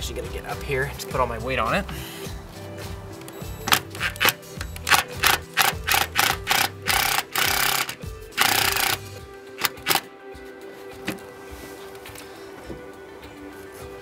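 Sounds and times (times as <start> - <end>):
drill driving screw into metal: 3.7 - 10.1.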